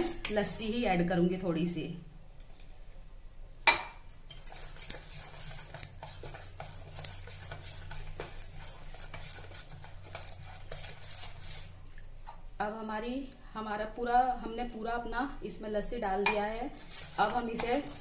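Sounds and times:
spoon clinking on steel bowl: 0:00.0 - 0:00.4, 0:03.7 - 0:11.5, 0:16.0 - 0:18.0
spoon scraping batter: 0:04.2 - 0:12.4, 0:16.0 - 0:18.0.

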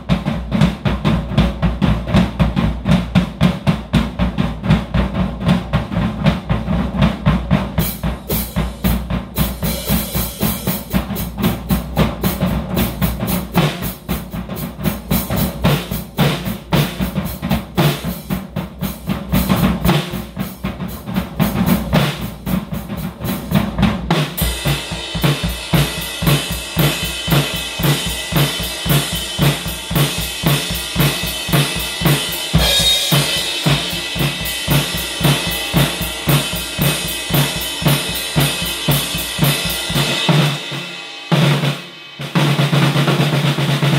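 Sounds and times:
drum kit played with sticks: 0:00.0 - 0:43.9
cymbals ringing: 0:32.6 - 0:33.6.

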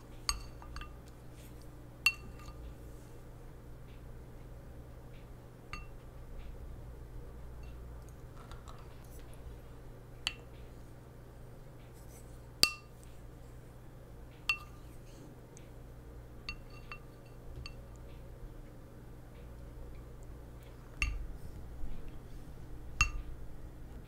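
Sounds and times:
low steady hum: 0:00.0 - 0:24.0
spoon clinking on ceramic plate: 0:00.3 - 0:01.0, 0:02.1 - 0:02.6, 0:05.8 - 0:06.0, 0:12.6 - 0:12.9, 0:14.5 - 0:14.8, 0:16.5 - 0:17.8, 0:21.0 - 0:21.2, 0:23.0 - 0:23.2.

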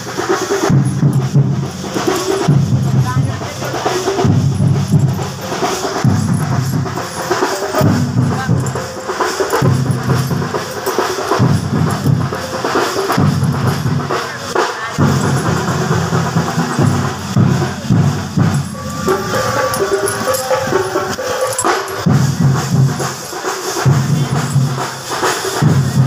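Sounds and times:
loud drum-led music: 0:00.0 - 0:26.0.

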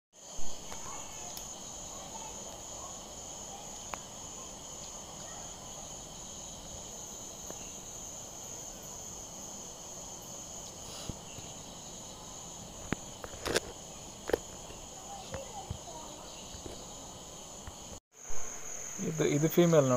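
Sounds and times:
night insects chirping: 0:00.2 - 0:19.9.

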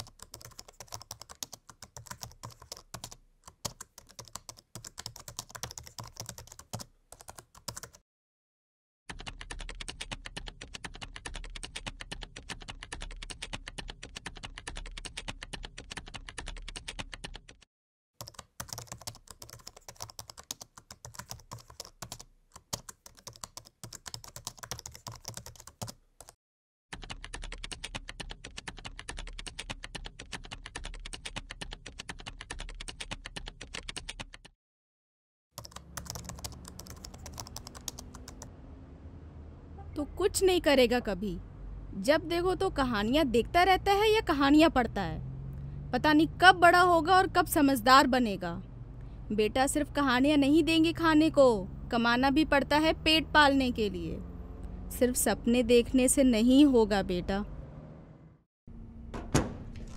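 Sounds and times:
rapid keyboard typing: 0:00.0 - 0:08.0, 0:09.1 - 0:34.5, 0:35.6 - 0:38.5.

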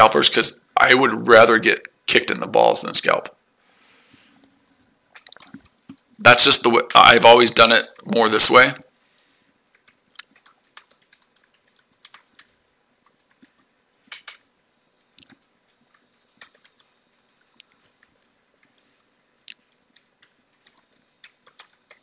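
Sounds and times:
typing on computer keyboard: 0:05.2 - 0:06.1, 0:09.7 - 0:22.0.

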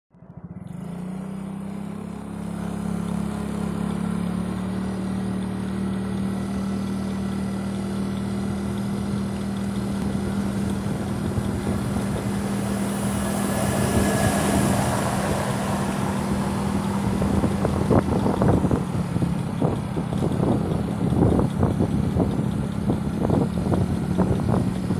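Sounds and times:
vehicle engine humming: 0:00.1 - 0:24.9
wind noise on microphone: 0:09.9 - 0:24.9.

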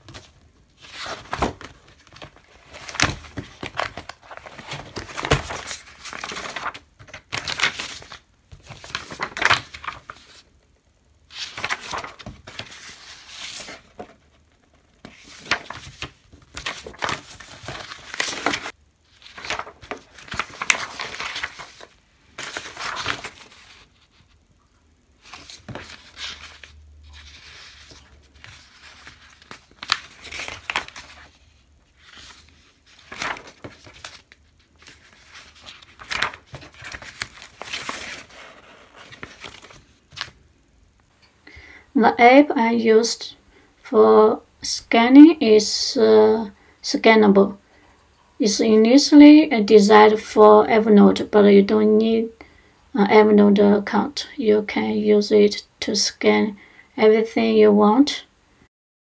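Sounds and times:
paper pages rustling: 0:00.0 - 0:10.5, 0:11.3 - 0:24.4, 0:25.2 - 0:40.4.

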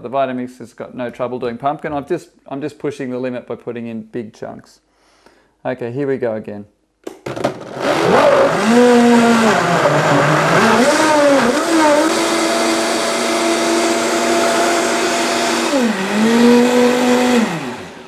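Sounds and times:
blender motor running: 0:07.5 - 0:18.0.

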